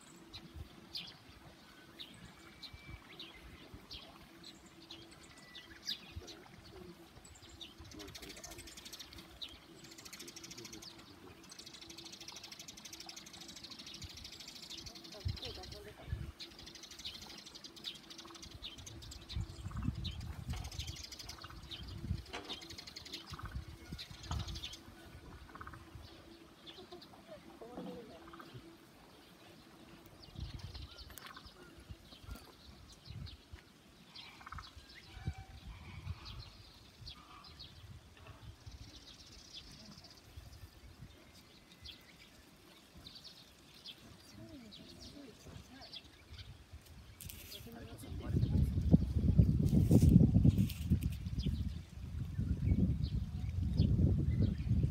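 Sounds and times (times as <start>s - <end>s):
small birds chirping: 0.0s - 54.9s
wind gusting on microphone: 18.3s - 26.3s, 30.2s - 33.4s, 34.4s - 41.3s, 45.4s - 54.9s.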